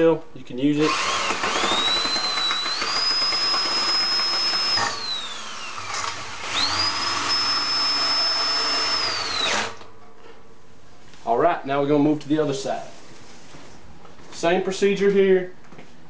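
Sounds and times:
power drill whining: 0.8s - 9.9s.

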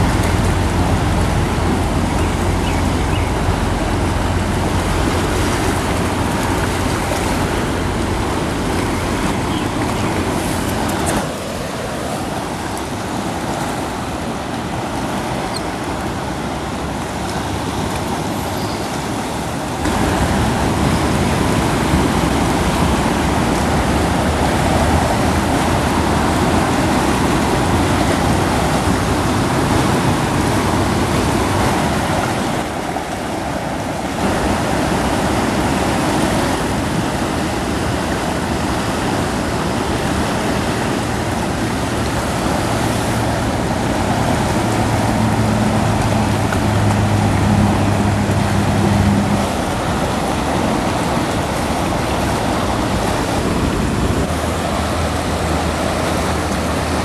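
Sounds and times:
river rushing: 0.0s - 57.0s.

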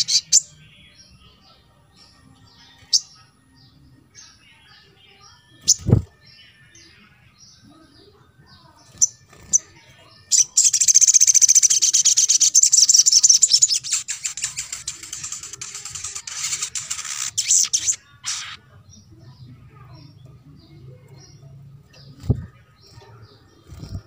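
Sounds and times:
songbird twittering: 8.9s - 19.1s.

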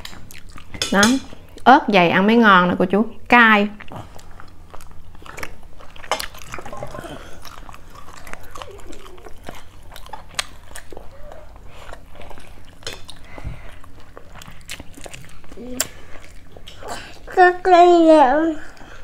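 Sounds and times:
chopsticks and fork clicking bowls: 0.0s - 1.3s
person chewing food: 0.0s - 1.6s, 3.8s - 17.4s.

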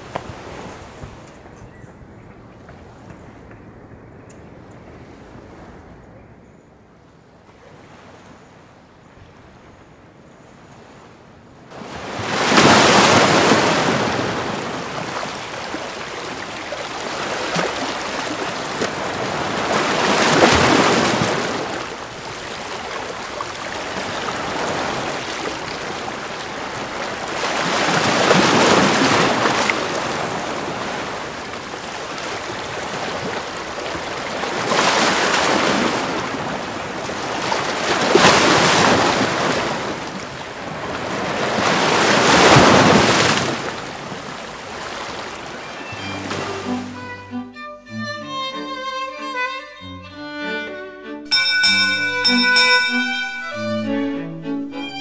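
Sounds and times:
waves breaking against a seawall: 11.7s - 47.0s.

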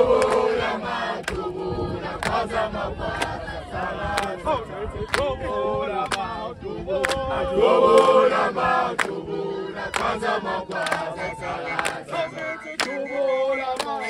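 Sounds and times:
men singing together: 0.0s - 14.0s
loud handclaps: 1.2s - 1.5s, 2.2s - 2.5s, 3.1s - 3.4s, 4.1s - 4.4s, 8.9s - 9.2s, 9.9s - 11.1s, 11.8s - 12.1s, 12.8s - 13.0s, 13.8s - 14.0s.

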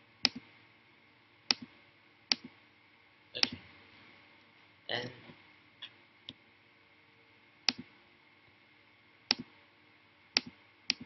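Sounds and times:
computer mouse clicks: 10.4s - 11.0s.

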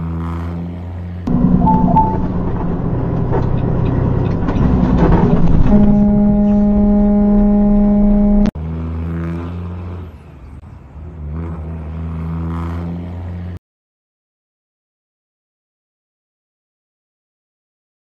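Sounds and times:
truck engine and road noise: 0.0s - 13.6s
short high beeps: 1.6s - 2.3s
truck air horn blast: 5.5s - 8.5s.

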